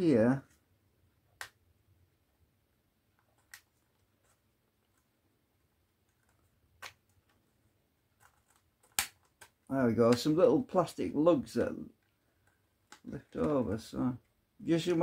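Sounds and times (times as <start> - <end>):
fingernail clicking on plastic: 8.2 - 10.3
plastic clip snapping: 8.8 - 9.6.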